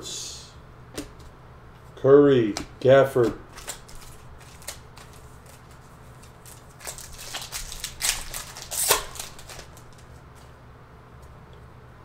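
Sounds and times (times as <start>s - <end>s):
plastic wrapper tearing and crinkling: 3.5s - 10.2s.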